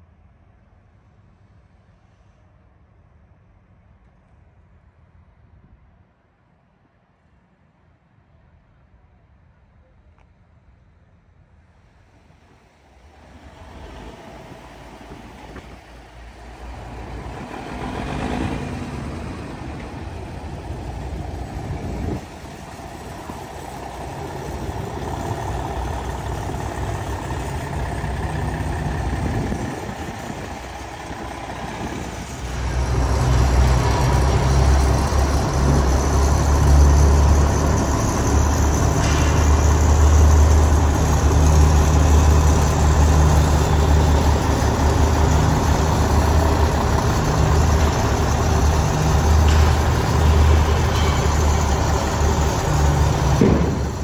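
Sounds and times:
diesel truck engine idling: 12.9 - 54.0.

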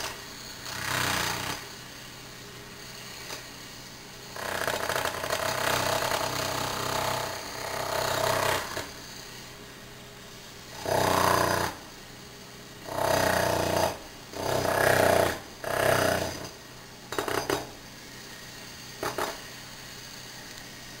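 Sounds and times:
electric jackhammer hammering: 0.0 - 1.8, 4.2 - 9.4, 10.7 - 11.9, 12.8 - 17.8, 18.5 - 19.5.

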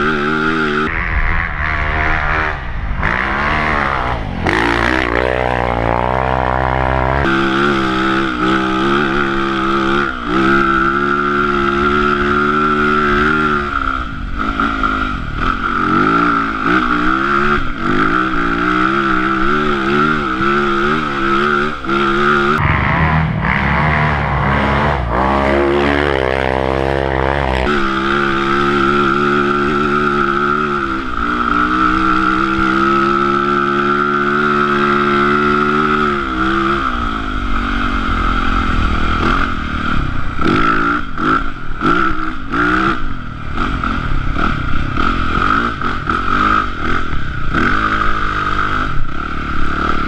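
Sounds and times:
steady high whine: 0.0 - 16.6, 20.2 - 32.8
dirt bike engine revving: 0.0 - 50.0.

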